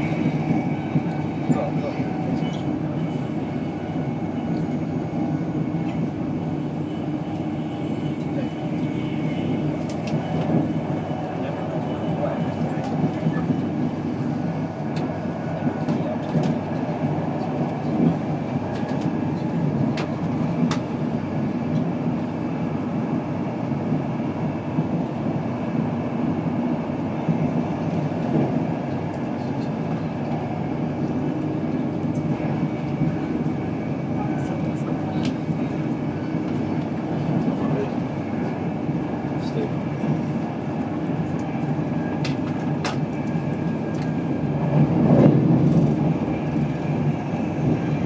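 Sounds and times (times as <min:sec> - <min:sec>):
train wheels rumbling on rails: 0:00.0 - 0:48.0.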